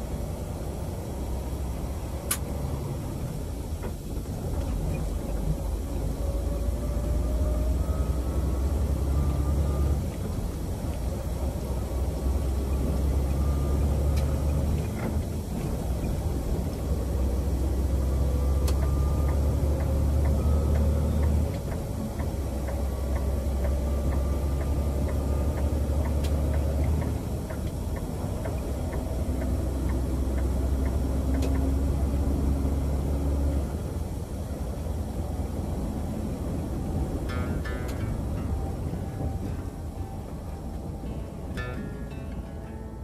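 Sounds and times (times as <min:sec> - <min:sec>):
truck engine rumble: 0:00.0 - 0:43.0
faint regular ticking: 0:18.6 - 0:32.2.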